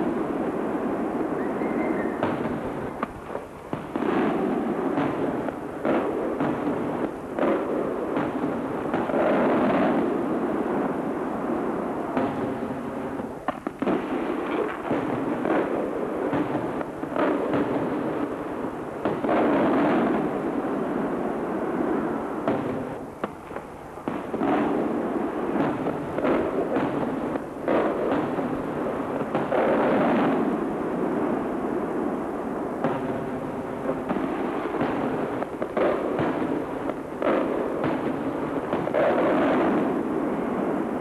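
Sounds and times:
firework bangs and crackle: 0.0s - 41.0s.

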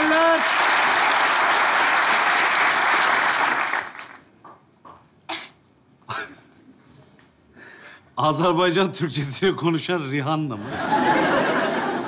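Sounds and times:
audience applause: 0.0s - 4.3s
man's stifled laughter: 6.1s - 6.8s.

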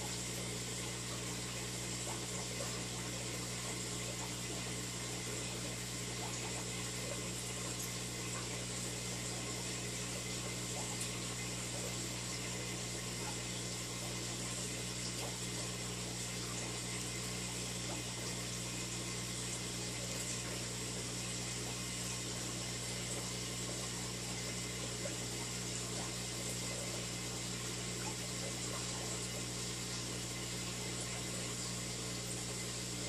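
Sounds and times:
aquarium pump humming: 0.0s - 33.0s.

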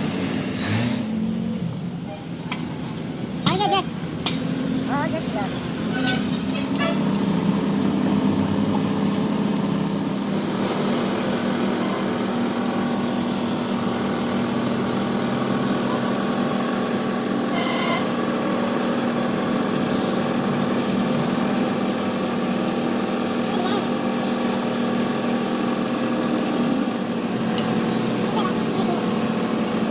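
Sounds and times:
small engine humming: 7.1s - 29.9s.

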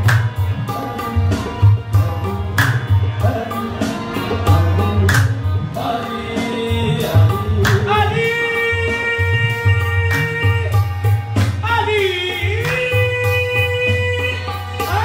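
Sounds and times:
hand-drum rhythm: 0.0s - 15.0s
harmoniums: 0.0s - 15.0s
voices singing: 0.6s - 10.8s.

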